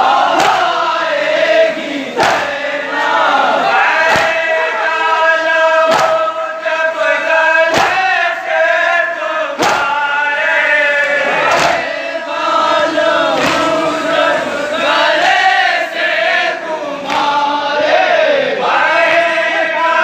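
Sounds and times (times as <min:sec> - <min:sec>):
chest-beating slaps in unison: 0:00.0 - 0:00.8, 0:01.5 - 0:04.6, 0:05.7 - 0:06.5, 0:07.6 - 0:08.4, 0:09.5 - 0:10.1, 0:11.0 - 0:12.0, 0:13.2 - 0:14.2, 0:15.0 - 0:17.6
men chanting a lament: 0:00.0 - 0:20.0.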